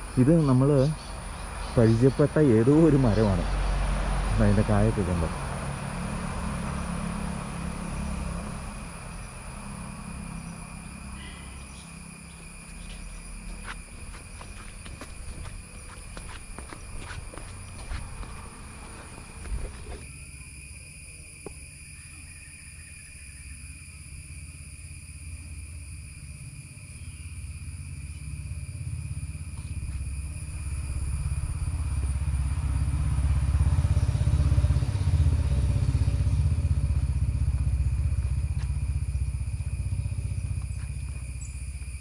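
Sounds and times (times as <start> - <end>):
faint high whine: 0.0 - 42.0
low rumble: 29.0 - 42.0.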